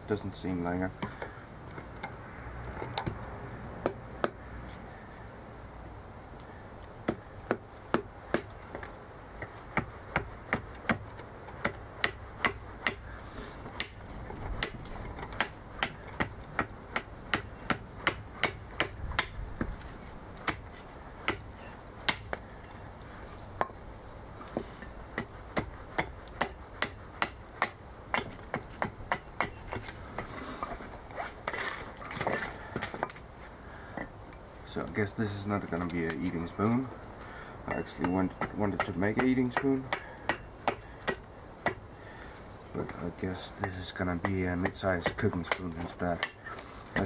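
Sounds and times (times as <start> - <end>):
axe chopping wood: 7.0 - 8.5, 9.7 - 13.2, 13.8 - 19.8, 20.4 - 22.4, 25.1 - 30.3, 37.7 - 41.9, 43.6 - 47.0.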